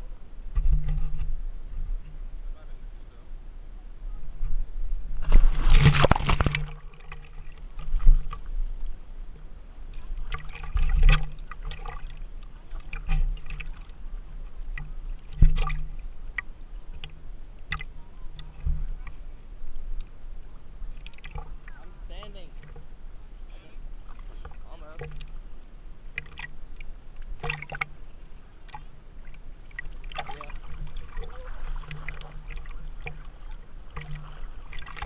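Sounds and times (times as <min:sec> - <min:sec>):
water sloshing and gurgling: 0:00.0 - 0:02.6, 0:04.2 - 0:35.0
loud splash into water: 0:05.2 - 0:07.2.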